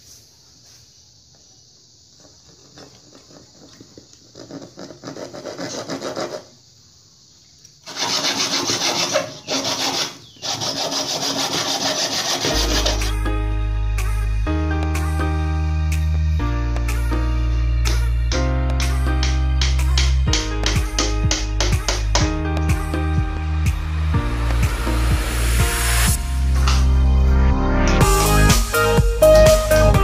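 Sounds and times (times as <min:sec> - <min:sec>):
hand saw cutting wood: 0:04.4 - 0:06.5, 0:07.8 - 0:13.1
music: 0:12.4 - 0:30.0.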